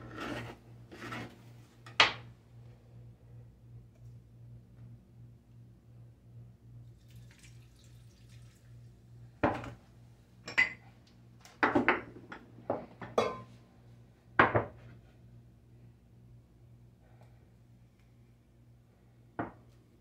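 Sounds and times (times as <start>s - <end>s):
glassware and cups clinking: 10.5s - 10.8s, 13.0s - 13.5s.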